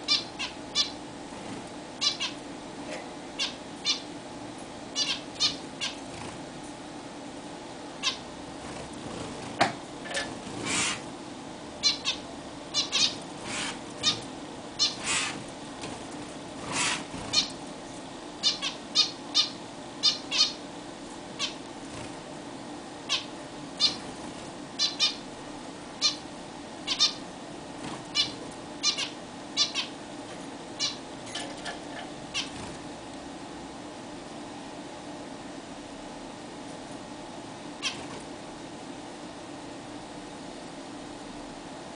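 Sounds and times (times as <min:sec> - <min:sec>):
finches calling: 0:00.0 - 0:01.0, 0:02.0 - 0:02.4, 0:03.4 - 0:04.1, 0:04.9 - 0:06.1, 0:08.0 - 0:08.2, 0:11.8 - 0:15.4, 0:16.6 - 0:17.6, 0:18.4 - 0:20.6, 0:23.1 - 0:24.0, 0:24.8 - 0:25.3, 0:26.0 - 0:26.2, 0:26.8 - 0:27.2, 0:28.1 - 0:30.0, 0:30.8 - 0:31.4
faint steady hum: 0:00.0 - 0:41.9.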